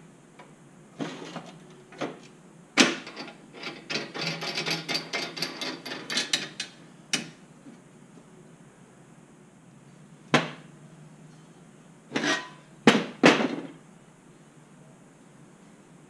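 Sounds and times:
steel plates clanking on metal table: 0:12.1 - 0:12.6.

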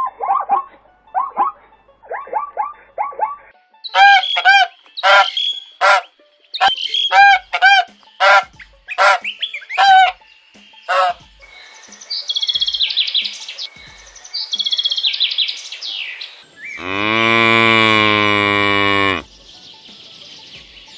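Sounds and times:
goose honking: 0:04.0 - 0:10.2, 0:10.9 - 0:11.2.

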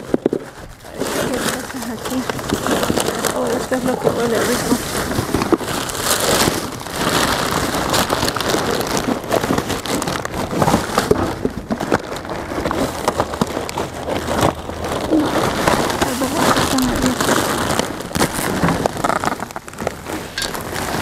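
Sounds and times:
trash bags rustling: 0:00.0 - 0:21.0.

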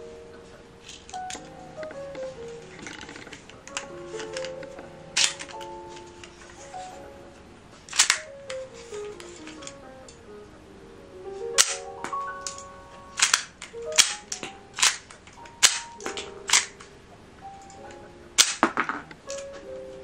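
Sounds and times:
soft background music: 0:00.0 - 0:20.0
toy pistol plastic clacks: 0:05.2 - 0:05.7, 0:07.9 - 0:08.6, 0:11.6 - 0:11.8, 0:13.2 - 0:16.8, 0:18.4 - 0:19.5.

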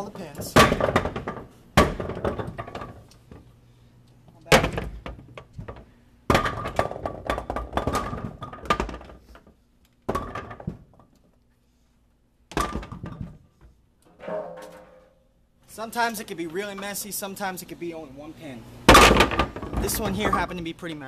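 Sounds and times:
bowling pins clattering on metal: 0:00.0 - 0:03.5, 0:04.4 - 0:09.4, 0:12.5 - 0:13.5, 0:14.1 - 0:15.4, 0:18.9 - 0:20.6.

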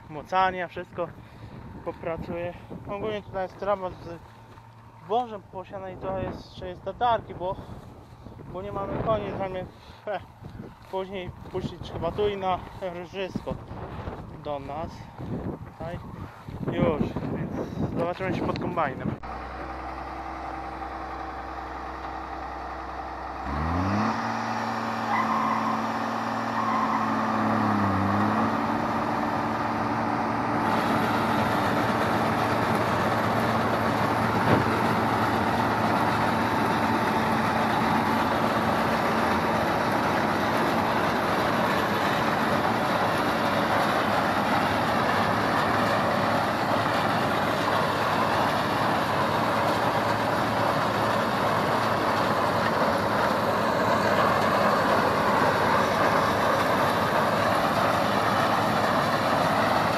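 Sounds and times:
threshing machinery noise: 0:00.0 - 0:59.9
combine harvester engine revving: 0:18.0 - 0:59.9.

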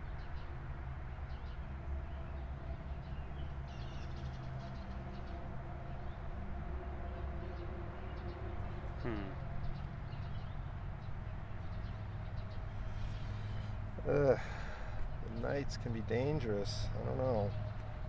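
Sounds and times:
faint bird chirps: 0:08.9 - 0:10.6
faint hum: 0:09.0 - 0:09.4.

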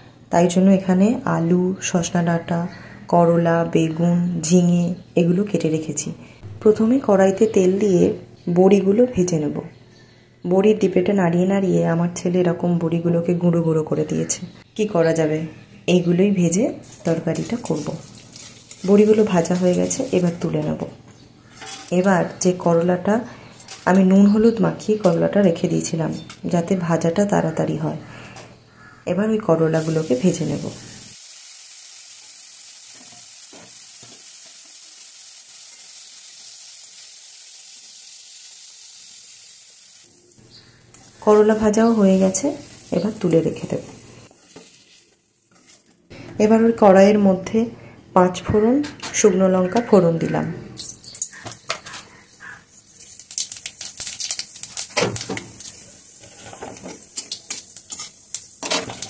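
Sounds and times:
vegetables sizzling in oil: 0:16.4 - 0:26.5, 0:29.6 - 0:46.1, 0:50.8 - 0:59.0
spatula stirring in wok: 0:44.4 - 0:45.9, 0:55.6 - 0:59.0.

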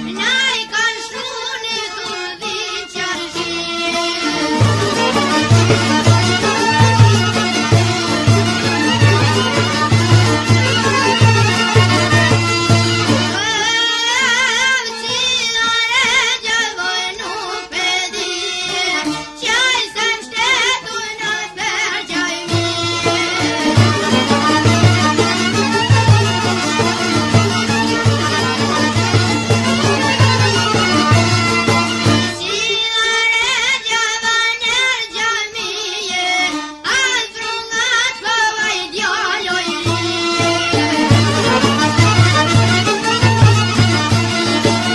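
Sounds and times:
held accompaniment: 0:00.0 - 0:33.9, 0:36.4 - 0:44.9
folk music with vibrato melody: 0:00.0 - 0:44.9
person singing with vibrato: 0:13.3 - 0:24.7, 0:32.4 - 0:42.0.

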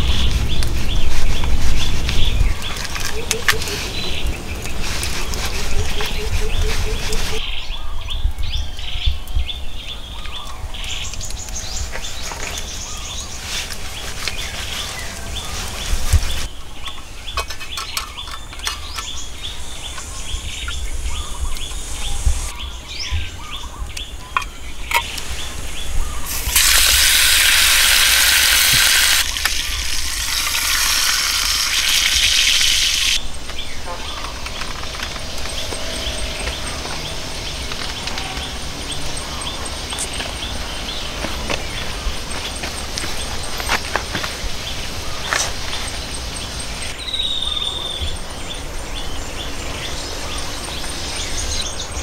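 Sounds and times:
birds chirping: 0:00.0 - 0:52.0
meat sizzling in a pan: 0:26.3 - 0:33.2.

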